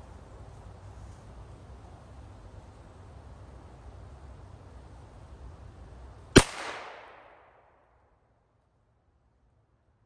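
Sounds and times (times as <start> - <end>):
rifle shot with echo: 6.4 - 7.9.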